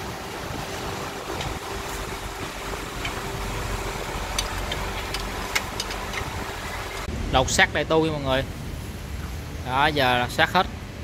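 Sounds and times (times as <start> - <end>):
workshop mechanical hum: 0.0 - 11.0
wrench clicking on metal bolts: 4.3 - 7.1.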